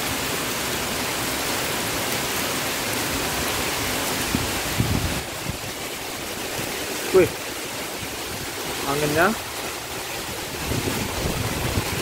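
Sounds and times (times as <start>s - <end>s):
heavy rain on metal roofs: 0.0s - 12.0s
wind buffeting microphone: 4.2s - 6.8s, 10.0s - 12.0s.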